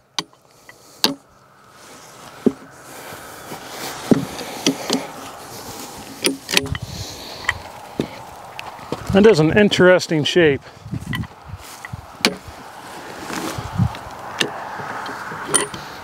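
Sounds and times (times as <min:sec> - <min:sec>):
log rolling scraping rumble: 0:00.8 - 0:16.0
wooden knocks of logs: 0:01.0 - 0:01.3, 0:02.4 - 0:02.7, 0:04.1 - 0:05.2, 0:12.2 - 0:12.6, 0:13.3 - 0:15.9.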